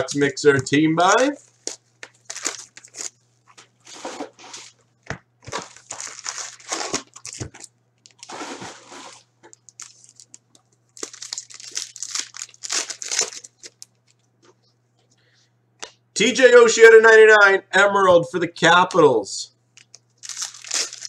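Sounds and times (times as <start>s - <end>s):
foil wrappers crinkling and tearing: 1.1s - 4.8s, 5.4s - 14.2s, 19.8s - 21.0s.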